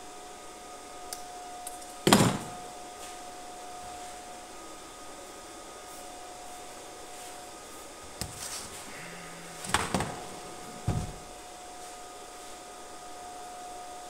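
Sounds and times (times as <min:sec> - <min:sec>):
faint steady hum: 0:00.0 - 0:14.0
loud knocks: 0:09.6 - 0:11.3.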